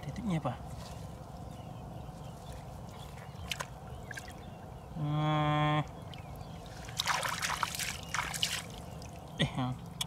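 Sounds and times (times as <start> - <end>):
hands splashing in muddy water: 6.7 - 9.2.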